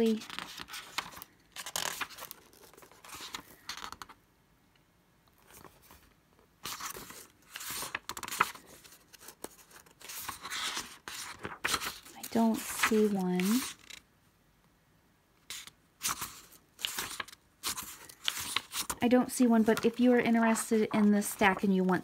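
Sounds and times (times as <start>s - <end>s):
book pages turning: 0.0s - 4.2s, 5.3s - 14.0s, 15.5s - 22.0s.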